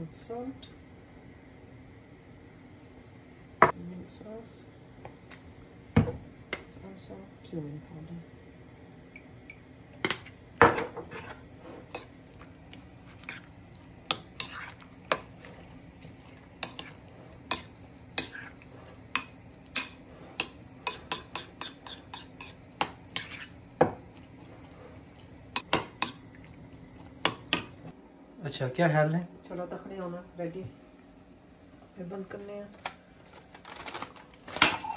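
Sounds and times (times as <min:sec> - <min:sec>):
fork clinking against ceramic bowl: 0:19.1 - 0:22.6.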